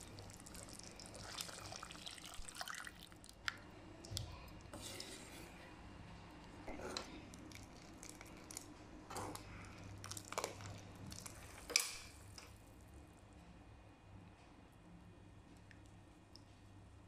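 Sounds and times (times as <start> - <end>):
faint low hum: 0.0 - 17.0
spoon scraping in a pan: 4.7 - 5.6.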